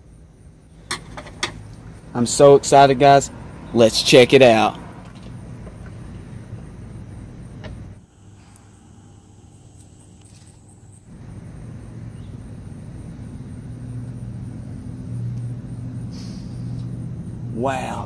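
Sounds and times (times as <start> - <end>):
metal cover scraping: 0.9 - 1.7
low mechanical hum: 4.7 - 18.0.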